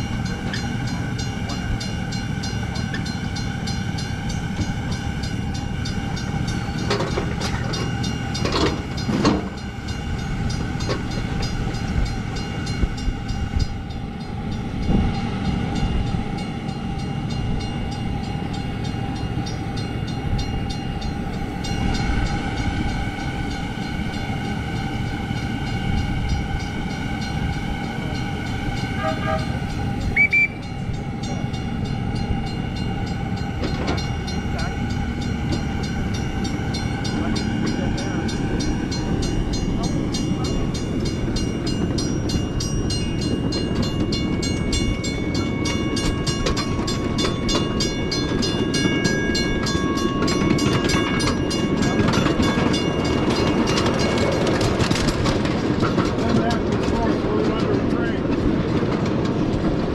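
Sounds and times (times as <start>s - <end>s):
miniature train rolling rumble: 0.0s - 59.9s.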